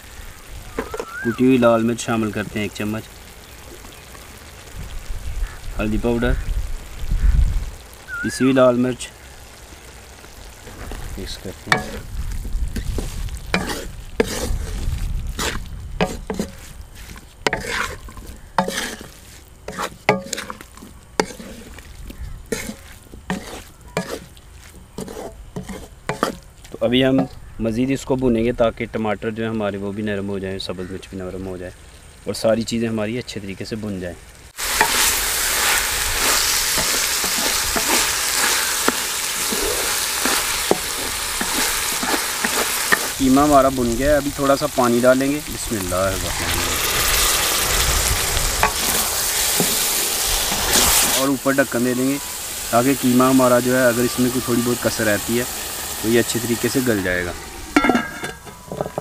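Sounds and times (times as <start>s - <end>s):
mince sizzling: 0.0s - 59.0s
spatula scraping metal pan: 11.7s - 12.1s, 12.8s - 21.8s, 22.4s - 26.5s, 34.7s - 43.3s, 48.6s - 51.3s, 56.2s - 59.0s.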